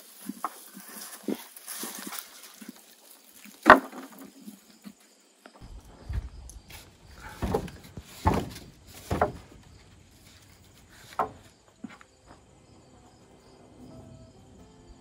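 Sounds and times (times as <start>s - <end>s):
wooden boards knocking: 3.6s - 4.3s, 7.2s - 9.9s, 11.1s - 12.0s.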